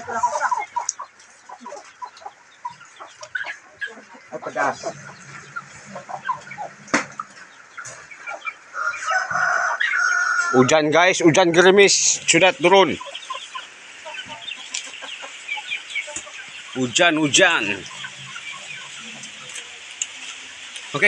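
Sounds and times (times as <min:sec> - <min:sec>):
chickens clucking: 0:00.0 - 0:21.0.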